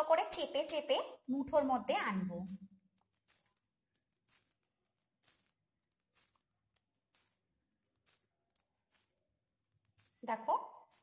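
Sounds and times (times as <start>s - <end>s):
hand squishing mashed mixture: 1.5s - 11.0s.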